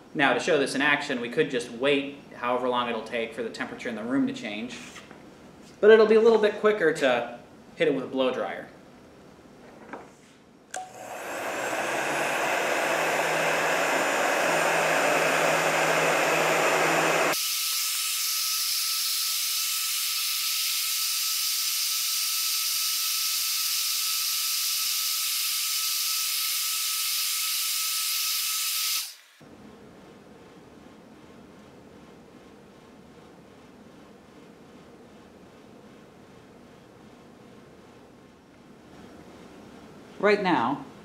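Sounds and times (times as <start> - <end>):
blow dryer blowing: 10.7 - 29.5
high steady whistle: 10.8 - 29.2.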